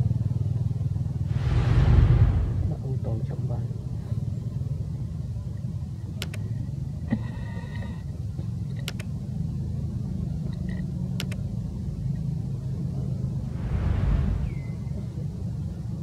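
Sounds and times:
low rumble: 1.2s - 3.3s, 13.1s - 15.2s.

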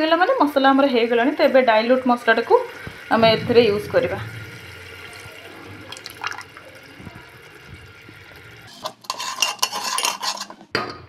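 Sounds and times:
paste sizzling in hot oil: 4.4s - 10.6s
metal ladle scraping and clinking: 8.6s - 10.7s.

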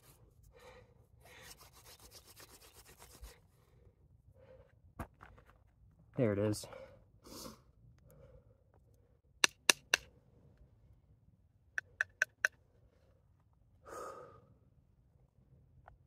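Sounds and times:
sharp wooden taps: 9.4s - 10.1s, 11.8s - 12.6s.

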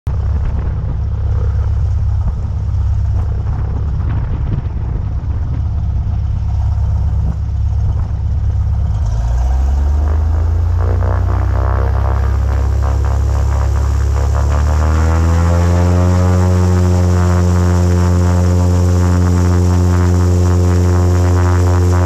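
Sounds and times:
propeller plane engine: 0.0s - 22.0s
wind buffeting microphone: 0.1s - 22.0s.

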